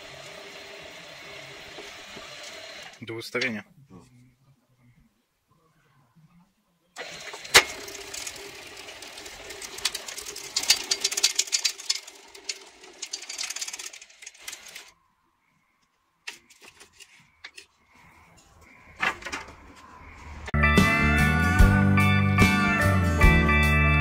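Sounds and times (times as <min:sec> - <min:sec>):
machine motor hum and rattling: 0:00.0 - 0:03.0, 0:07.0 - 0:14.9.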